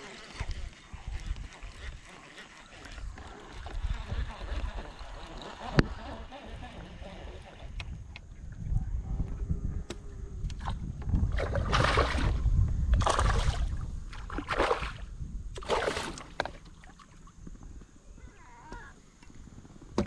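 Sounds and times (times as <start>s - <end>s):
paddle swishing water: 0.0s - 8.0s.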